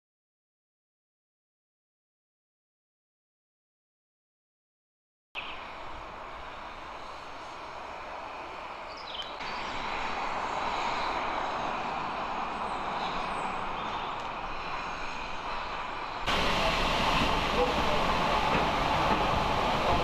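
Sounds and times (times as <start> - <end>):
train engine rushing drone: 5.4 - 20.0.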